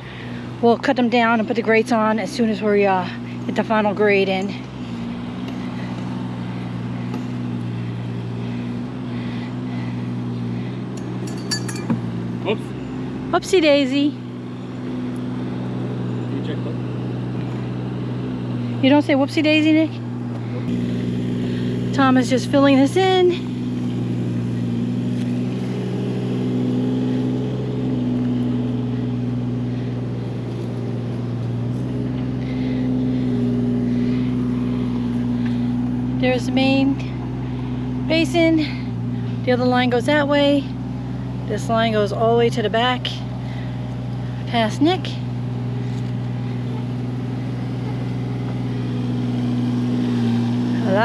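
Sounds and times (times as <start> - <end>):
diesel engine running: 0.0 - 51.0
light clinks: 11.0 - 12.2.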